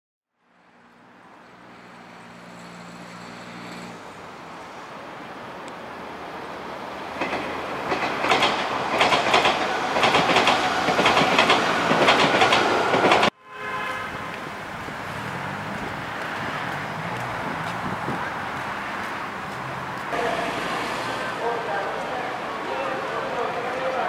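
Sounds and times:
road traffic hum: 0:00.4 - 0:24.0
train wheels clacking: 0:07.2 - 0:13.3.

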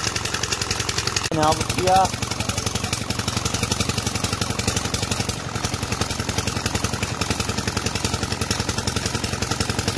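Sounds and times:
diesel pump engine running: 0:00.0 - 0:09.9
water pouring from pipe: 0:00.0 - 0:09.9.

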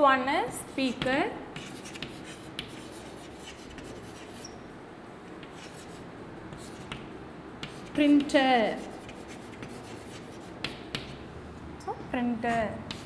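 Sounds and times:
chalk scratching on a blackboard: 0:00.8 - 0:04.6, 0:05.4 - 0:11.2, 0:12.4 - 0:13.0
chalk tapping on a blackboard: 0:00.9 - 0:04.6, 0:05.4 - 0:11.2, 0:12.5 - 0:13.0.

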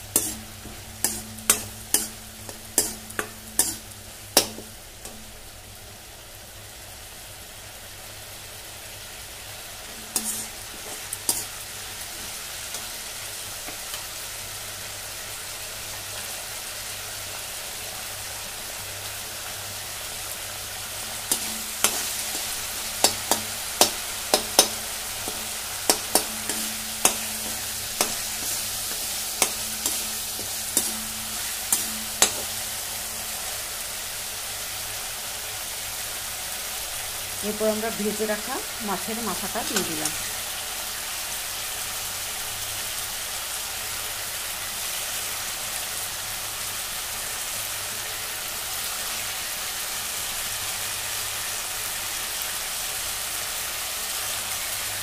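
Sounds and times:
metal spatula scraping a pan: 0:00.0 - 0:05.2, 0:10.0 - 0:11.6, 0:21.2 - 0:33.4
masala sizzling in a pan: 0:00.0 - 0:55.0.

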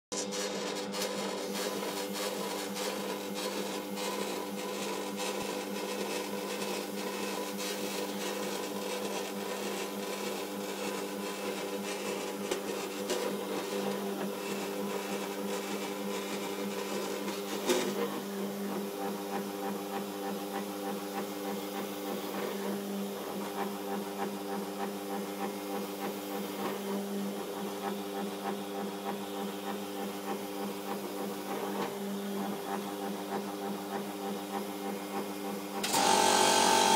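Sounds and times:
machine motor humming: 0:35.8 - 0:36.9.

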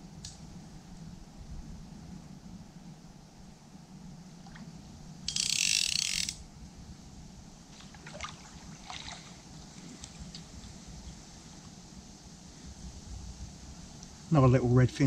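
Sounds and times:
fishing reel ratchet buzzing: 0:05.3 - 0:06.4
light reel clicks: 0:05.3 - 0:06.4.

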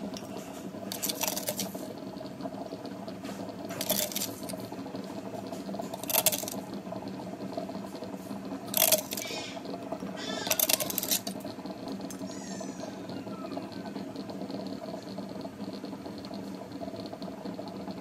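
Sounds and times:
small motor humming: 0:05.8 - 0:06.8, 0:07.8 - 0:15.2.

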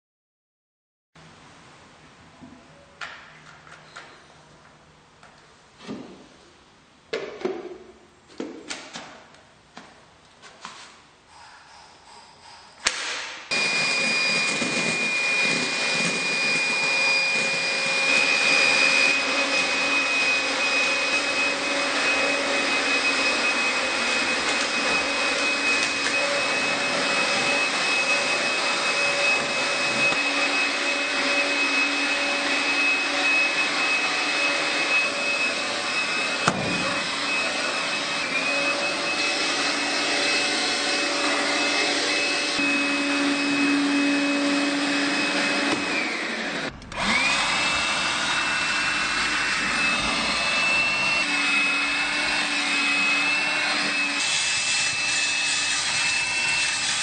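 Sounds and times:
stick vacuum whining: 0:12.7 - 0:57.0.

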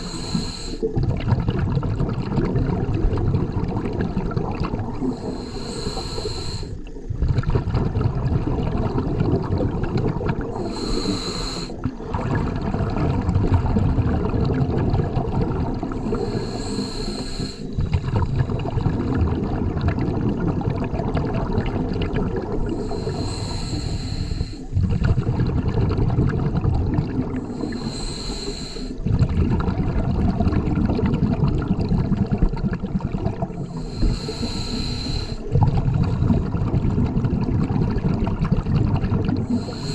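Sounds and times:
regulator inhalation hiss: 0:00.0 - 0:01.0, 0:05.0 - 0:06.9, 0:10.4 - 0:11.8, 0:15.9 - 0:18.4, 0:22.7 - 0:24.8, 0:27.4 - 0:29.0, 0:33.5 - 0:35.5, 0:39.4 - 0:39.9
exhaled bubbles rumbling: 0:00.0 - 0:39.9.

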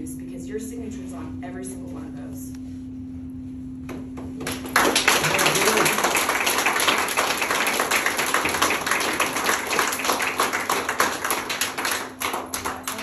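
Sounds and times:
audience clapping: 0:04.4 - 0:13.0.

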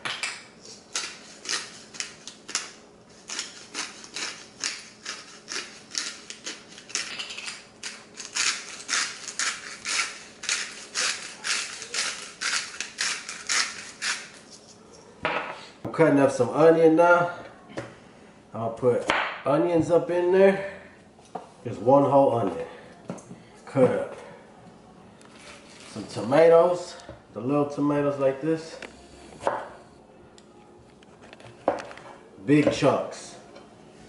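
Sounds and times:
salt shaker rattling: 0:06.8 - 0:14.5.

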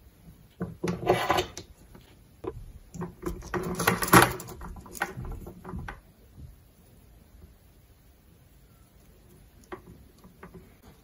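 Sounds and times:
soldering iron knocking and scraping: 0:00.4 - 0:06.6, 0:09.6 - 0:11.0.

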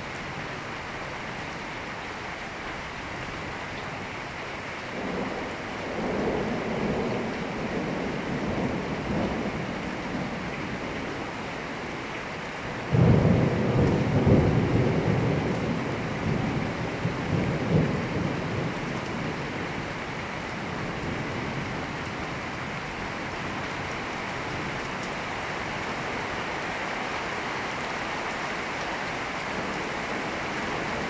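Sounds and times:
steady rain: 0:00.0 - 0:31.0
thunder rumbling: 0:12.8 - 0:20.0.

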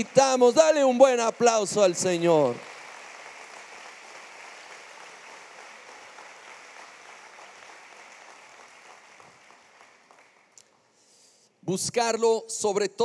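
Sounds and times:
congregation applauding: 0:00.0 - 0:11.0.

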